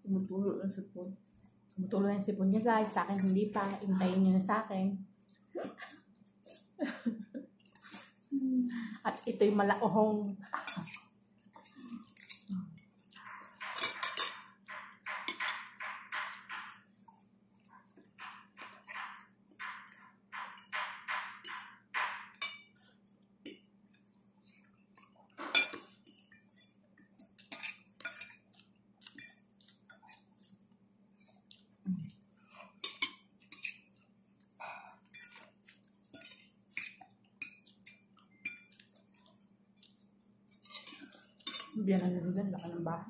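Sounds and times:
chewing: 0:05.2 - 0:06.4, 0:10.8 - 0:15.1, 0:26.0 - 0:41.8
forks clinking on plates: 0:10.6 - 0:12.5, 0:13.1 - 0:16.9, 0:18.2 - 0:22.9, 0:25.4 - 0:30.3, 0:32.8 - 0:34.4, 0:35.0 - 0:39.3, 0:40.5 - 0:42.1.

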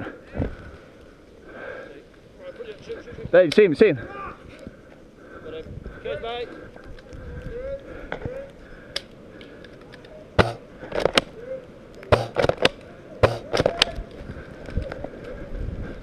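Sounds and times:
airsoft rifles firing: 0:10.4 - 0:11.3, 0:12.1 - 0:13.9.

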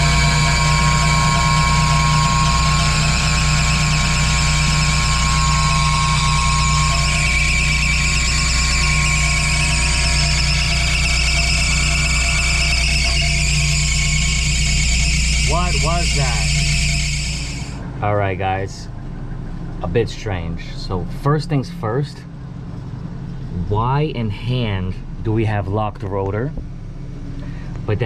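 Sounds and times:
fan motor humming: 0:00.0 - 0:18.8
high motor whine: 0:00.0 - 0:25.3.

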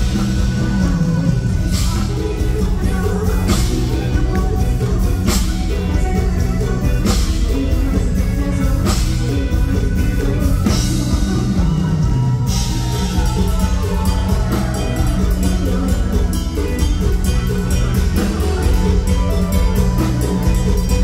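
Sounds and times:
woman singing into a microphone: 0:00.0 - 0:16.8
bass: 0:00.0 - 0:21.0
drum kit beat: 0:00.0 - 0:21.0
live band music through a pa: 0:00.0 - 0:21.0.

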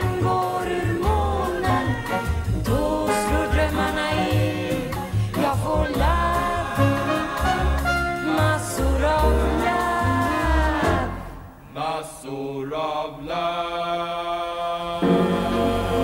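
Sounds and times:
instrumental show music: 0:00.0 - 0:11.6, 0:15.0 - 0:16.0.

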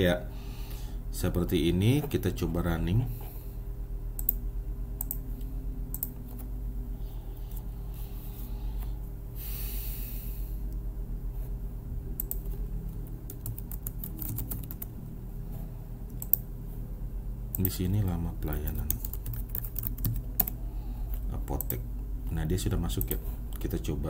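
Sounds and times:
low hum: 0:00.0 - 0:24.0
keyboard keys clicking: 0:12.2 - 0:15.0, 0:17.5 - 0:21.8.

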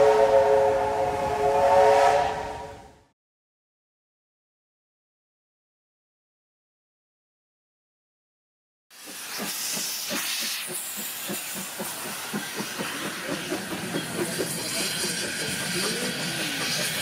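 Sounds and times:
steam locomotive chuffs: 0:08.9 - 0:17.0
hiss of escaping steam: 0:09.0 - 0:17.0.

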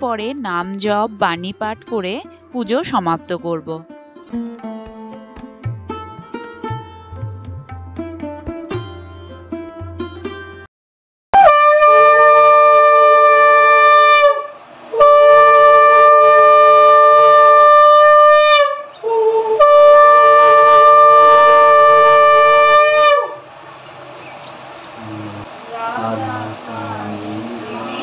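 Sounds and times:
conch shell blasts: 0:11.4 - 0:23.4.

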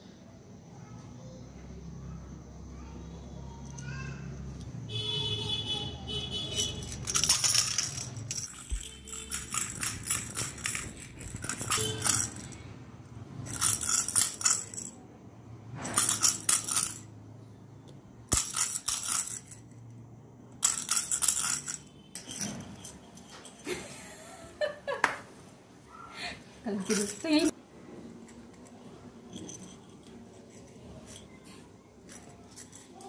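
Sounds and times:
toy balls with bells jingling: 0:06.2 - 0:15.0, 0:15.8 - 0:17.3, 0:18.3 - 0:19.9, 0:20.6 - 0:24.4, 0:26.7 - 0:27.6, 0:29.2 - 0:33.0.

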